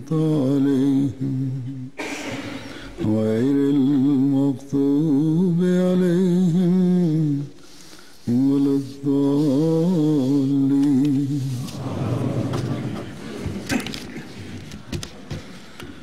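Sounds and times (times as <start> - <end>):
man chanting religious recitation: 0.0 - 2.0, 2.9 - 7.6, 8.2 - 12.4.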